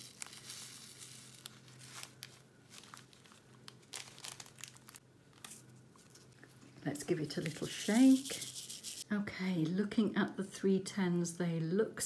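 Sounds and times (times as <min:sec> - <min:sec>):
plastic zip bag crinkling: 0:00.0 - 0:06.4.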